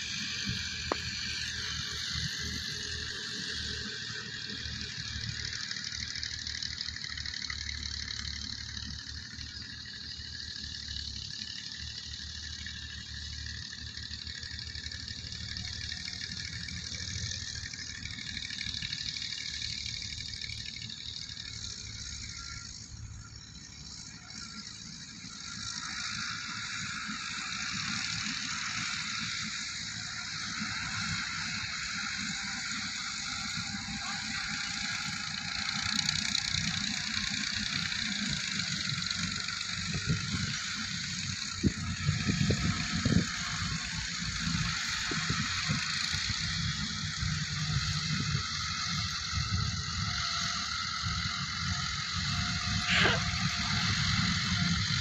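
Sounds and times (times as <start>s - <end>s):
tractor diesel engines chugging: 0.0s - 55.0s.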